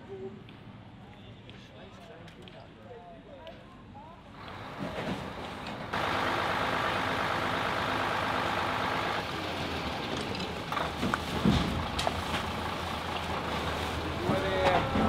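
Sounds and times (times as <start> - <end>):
truck engine running: 4.4 - 15.0.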